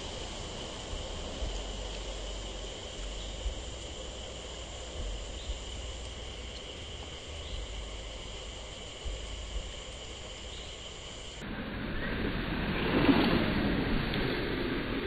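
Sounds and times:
insect chorus drone: 0:00.0 - 0:15.0
low rumble: 0:11.4 - 0:15.0.

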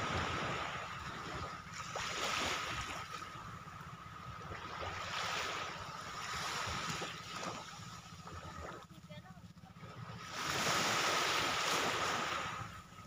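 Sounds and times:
wind rumbling on microphone: 0:00.0 - 0:09.1
small sea waves washing ashore: 0:00.0 - 0:13.0.

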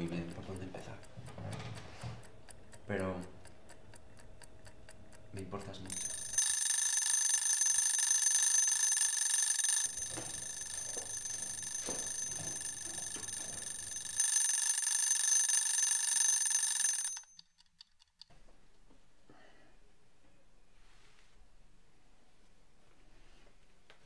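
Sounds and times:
kitchen timer bell ringing: 0:05.9 - 0:17.6.

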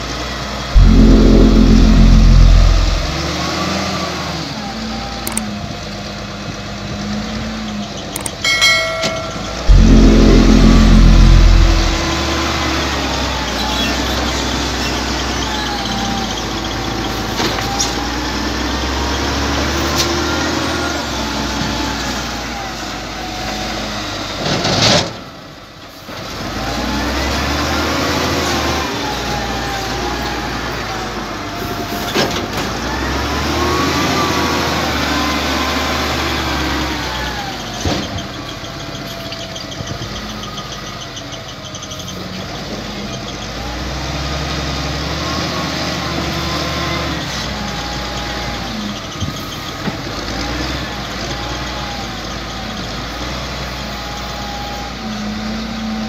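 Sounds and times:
steady low hum: 0:00.8 - 0:03.3, 0:08.8 - 0:12.4.

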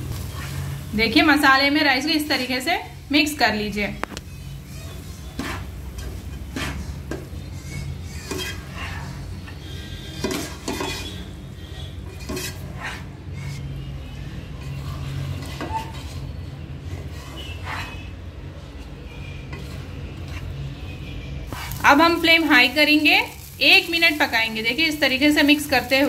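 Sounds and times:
spoon scraping a pan: 0:00.2 - 0:00.9, 0:04.1 - 0:22.3.

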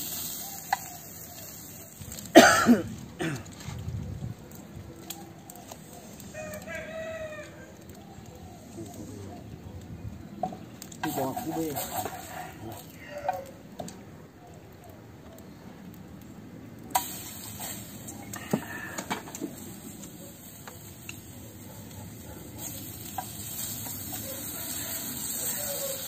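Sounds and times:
meat sizzling in hot oil: 0:00.0 - 0:02.4, 0:11.0 - 0:13.0, 0:16.9 - 0:26.0.

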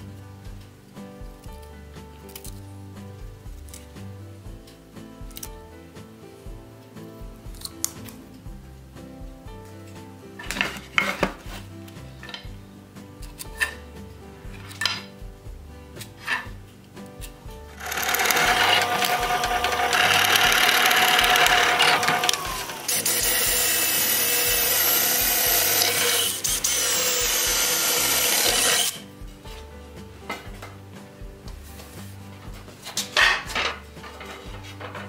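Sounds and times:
power drill boring through wood: 0:17.8 - 0:29.0.

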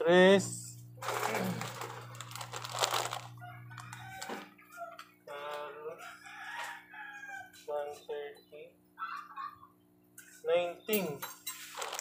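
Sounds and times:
steady low hum: 0:00.0 - 0:06.0
rustling: 0:01.5 - 0:03.4, 0:11.6 - 0:12.0
rooster crowing: 0:02.8 - 0:07.6.

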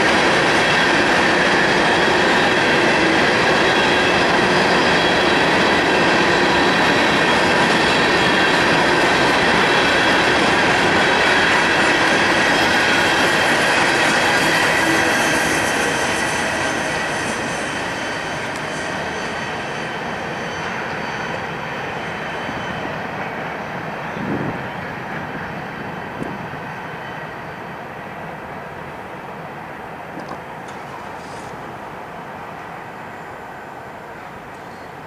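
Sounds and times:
high wheel squeal: 0:00.0 - 0:25.0
train wheels rumbling on rails: 0:00.0 - 0:35.0.

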